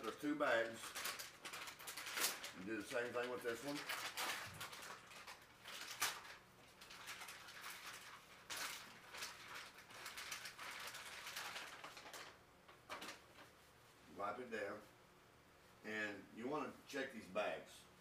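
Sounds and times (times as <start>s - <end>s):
plastic bag crinkling: 0.0s - 13.6s.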